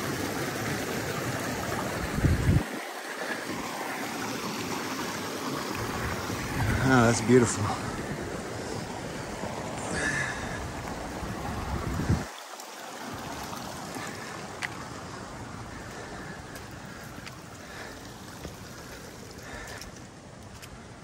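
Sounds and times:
creek water rushing: 0:00.0 - 0:21.0
wind rumbling on microphone: 0:01.7 - 0:02.8, 0:05.7 - 0:12.4.

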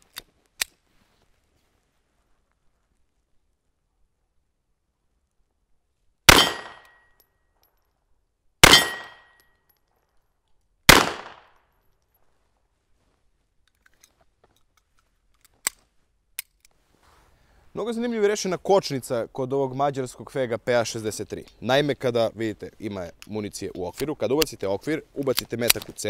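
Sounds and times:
pistol shots with echo: 0:06.3 - 0:07.0, 0:08.6 - 0:09.3, 0:10.9 - 0:11.5.

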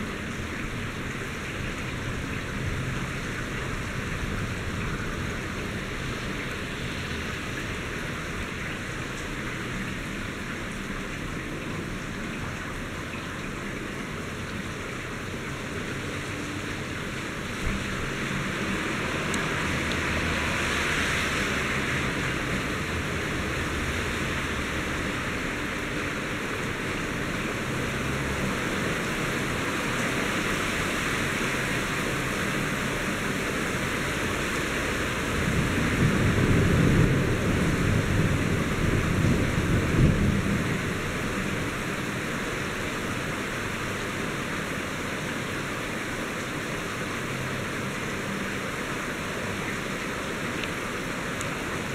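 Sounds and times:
heavy rain falling: 0:00.0 - 0:51.9
low thunder rumble: 0:35.4 - 0:42.0.

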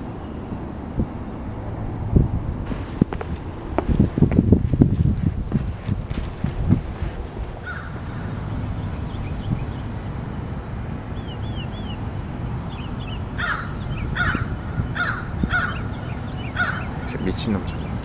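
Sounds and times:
steady low rumble: 0:00.0 - 0:17.3
loud bird calls: 0:07.6 - 0:09.9, 0:11.1 - 0:18.0.

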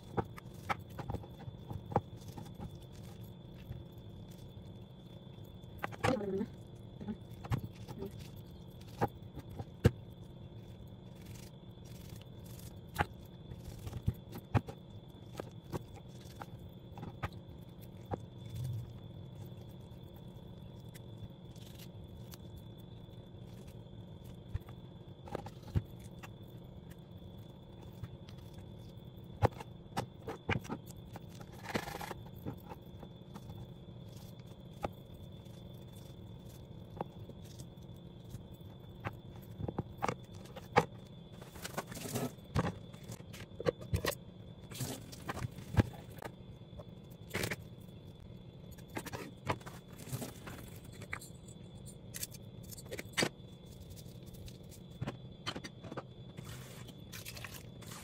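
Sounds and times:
steady background hum: 0:00.0 - 0:58.0.

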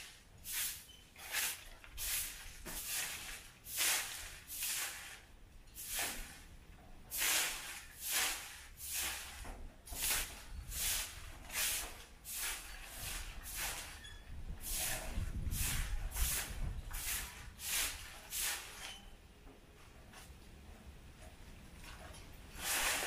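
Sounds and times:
broom sweeping leaves and grit: 0:00.0 - 0:06.5, 0:07.1 - 0:14.0, 0:14.6 - 0:18.9, 0:22.5 - 0:23.0.

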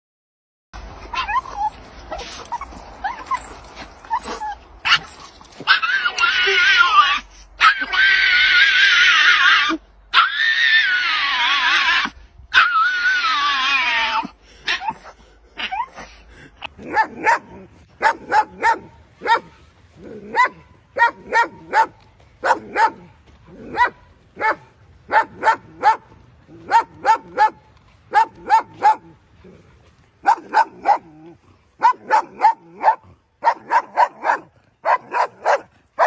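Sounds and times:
dog crying high-pitched: 0:01.1 - 0:16.2
dogs barking: 0:16.7 - 0:29.2, 0:30.2 - 0:36.0.

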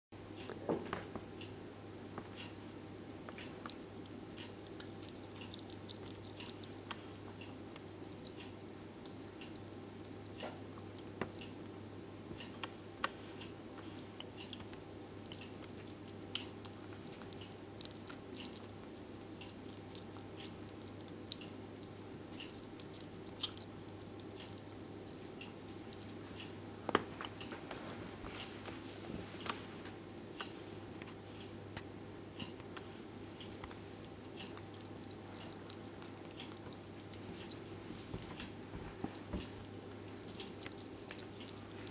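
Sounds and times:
steady low hum: 0:00.2 - 0:41.9
animal chewing wet clicks: 0:03.3 - 0:11.6, 0:13.8 - 0:26.6, 0:30.4 - 0:37.8, 0:38.4 - 0:41.9.

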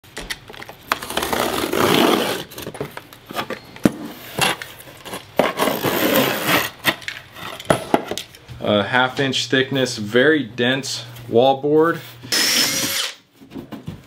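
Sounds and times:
board tearing as it bends: 0:00.9 - 0:02.7, 0:05.4 - 0:06.8.

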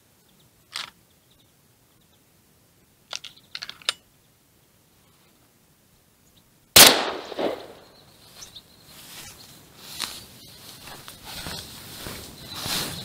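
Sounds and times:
shotgun shot with echo: 0:06.8 - 0:07.9.

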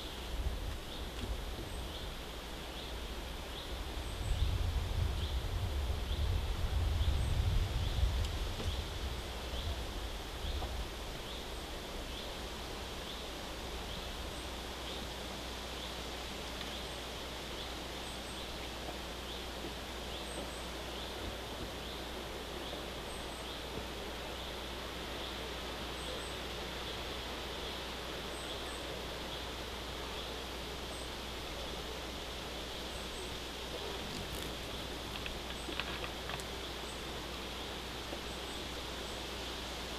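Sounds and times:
outdoor hiss: 0:00.0 - 0:39.9
small bird calling: 0:28.3 - 0:37.6.

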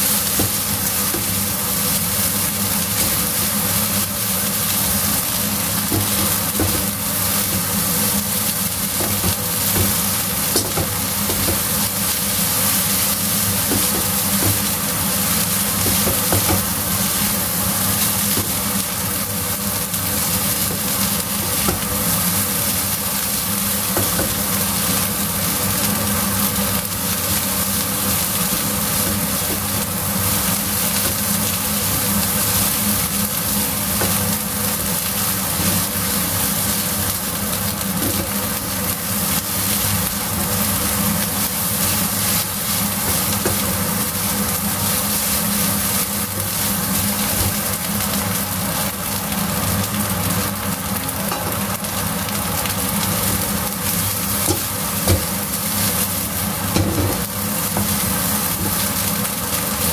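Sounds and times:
fried rice sizzling in wok: 0:00.0 - 0:59.9.

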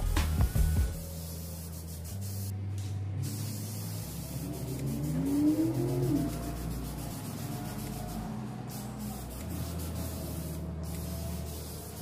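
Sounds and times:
background music: 0:00.0 - 0:01.4
spray paint can hissing: 0:00.2 - 0:12.0.

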